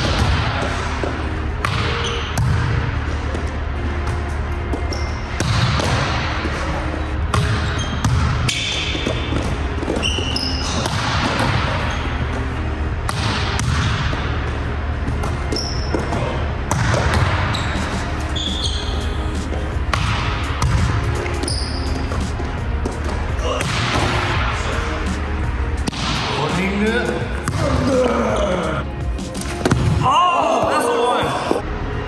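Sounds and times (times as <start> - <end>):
sneaker squeaks on court floor: 1.8 - 2.5, 4.8 - 5.3, 7.4 - 9.1, 9.9 - 10.9, 15.4 - 16.2, 17.5 - 19.7, 21.3 - 22.3.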